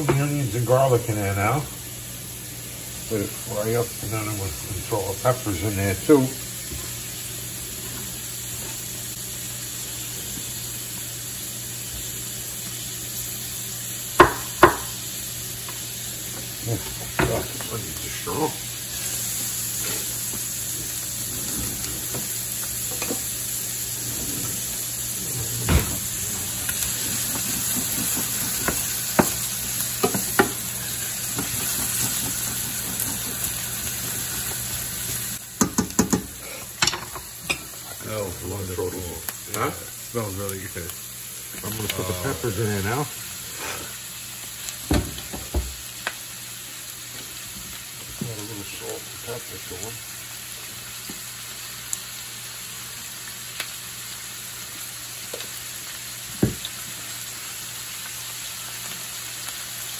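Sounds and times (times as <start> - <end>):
onion sizzling in hot oil: 0.0 - 59.9
wooden spoon knocking on pan: 14.2 - 14.9, 27.2 - 29.4, 30.0 - 30.6, 35.6 - 36.3, 56.4 - 56.7.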